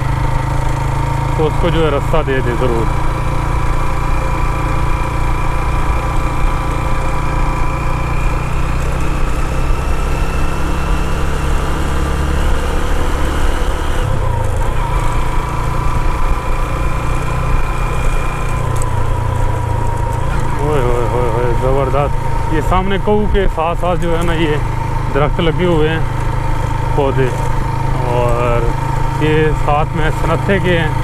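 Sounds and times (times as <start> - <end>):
motorcycle engine running: 0.0 - 31.0.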